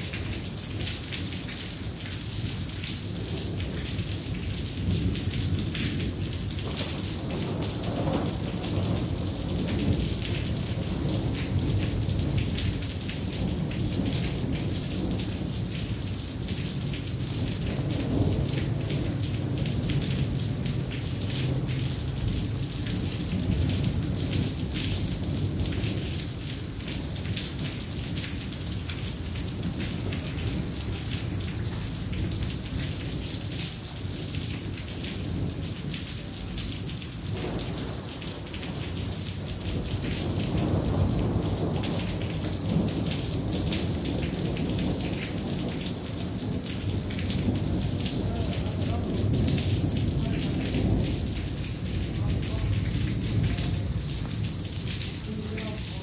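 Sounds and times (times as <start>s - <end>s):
heavy rain: 0.0s - 56.0s
thunder rumbling: 3.2s - 16.1s, 37.3s - 56.0s.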